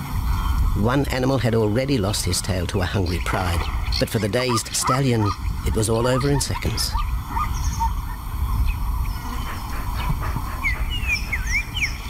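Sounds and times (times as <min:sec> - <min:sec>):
bird chirps: 0:02.8 - 0:12.0
lion panting: 0:09.2 - 0:11.6.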